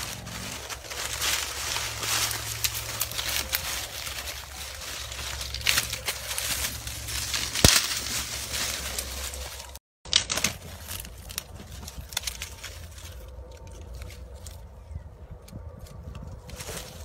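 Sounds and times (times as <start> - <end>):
twigs and leaves crackling: 0.0 - 17.0.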